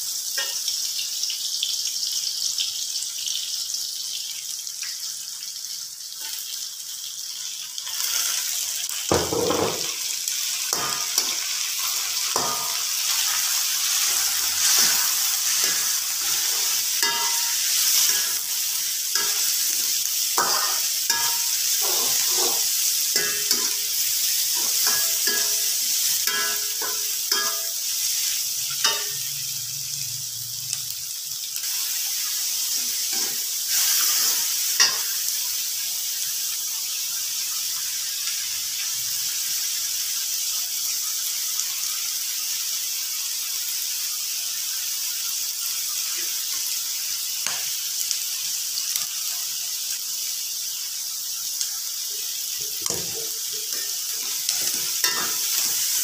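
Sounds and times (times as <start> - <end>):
vegetables sizzling in hot oil: 0.0 - 56.0
metal spatula scraping a wok: 13.9 - 18.6, 19.2 - 27.8, 53.0 - 56.0.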